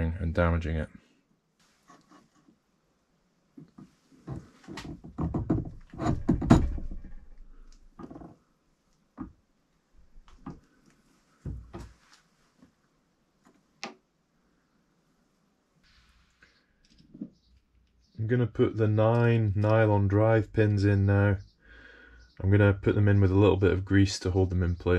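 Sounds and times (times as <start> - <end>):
metal knocks and clunks: 4.3 - 8.3.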